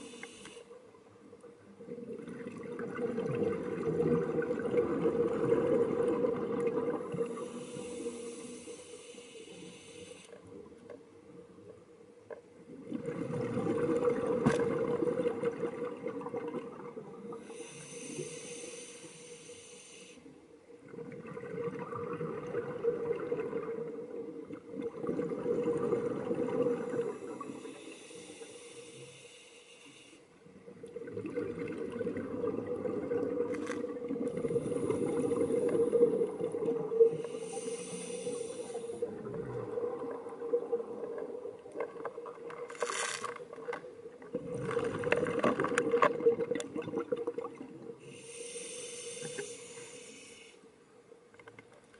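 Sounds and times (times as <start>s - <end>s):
hissing inhale through regulator: 0.0s - 0.8s, 7.0s - 10.5s, 17.3s - 20.4s, 26.8s - 30.4s, 33.6s - 39.3s, 48.0s - 50.7s
rumble of exhaled bubbles: 1.8s - 7.4s, 12.7s - 17.4s, 20.8s - 27.5s, 30.7s - 37.3s, 39.0s - 42.5s, 43.6s - 48.0s.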